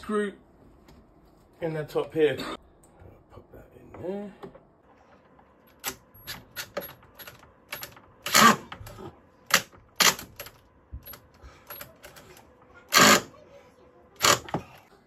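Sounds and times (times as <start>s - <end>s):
metal parts clicking and knocking: 5.7s - 8.9s.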